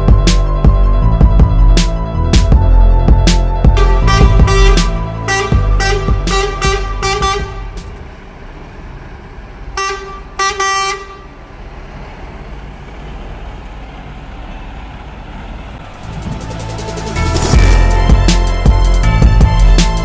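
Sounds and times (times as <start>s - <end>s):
truck engine running: 0.0s - 10.4s, 11.2s - 20.0s
truck horn short toots: 3.8s - 7.9s, 9.8s - 11.3s.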